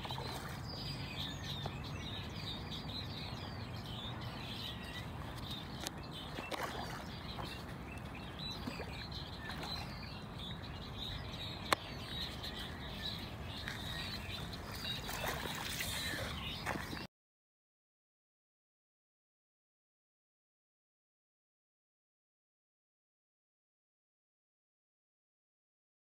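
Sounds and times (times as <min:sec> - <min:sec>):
birds chirping: 0:00.0 - 0:17.1.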